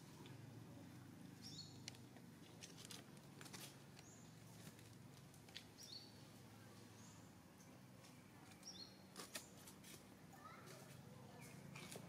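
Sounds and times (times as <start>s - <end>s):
small bird chirps: 1.3s - 2.0s, 5.7s - 7.3s, 8.4s - 9.7s.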